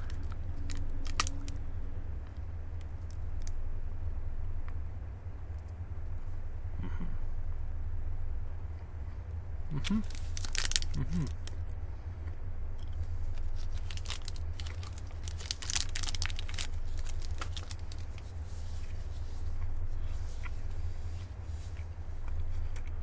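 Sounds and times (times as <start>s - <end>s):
plastic wrapper crinkling: 0.0s - 1.6s, 9.8s - 11.6s, 13.3s - 18.3s
steady low hum: 0.0s - 23.0s.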